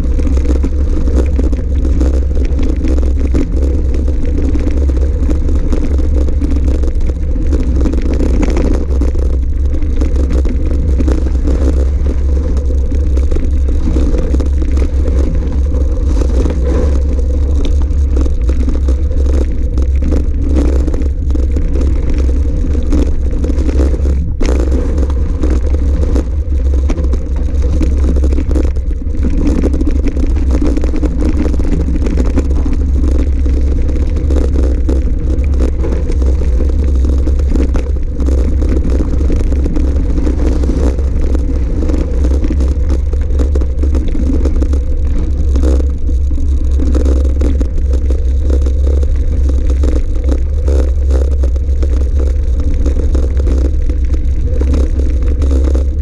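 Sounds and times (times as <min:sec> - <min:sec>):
tyres rumbling over gravel: 0:00.0 - 0:56.0.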